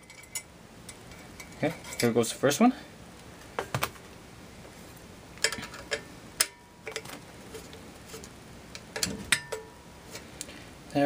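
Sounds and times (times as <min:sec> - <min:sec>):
light metallic clicks and clinks: 0:00.0 - 0:02.2.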